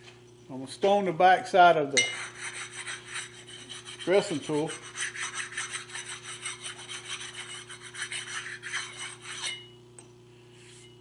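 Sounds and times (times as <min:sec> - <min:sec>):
sharpening stone rubbing on steel: 0:02.0 - 0:09.7.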